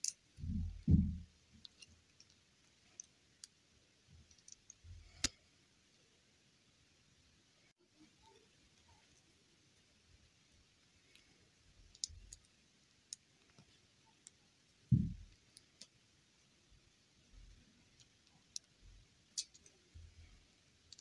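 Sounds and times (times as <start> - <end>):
dull thump: 0.4 - 1.2, 14.9 - 15.2.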